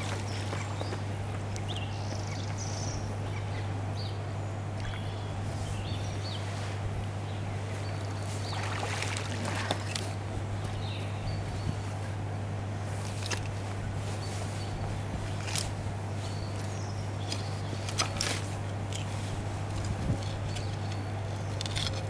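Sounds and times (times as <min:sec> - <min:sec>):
small birds chirping: 0:00.0 - 0:12.2, 0:14.0 - 0:19.3, 0:20.0 - 0:22.0
steady low hum: 0:00.0 - 0:22.0
water pouring and splashing: 0:08.6 - 0:10.0.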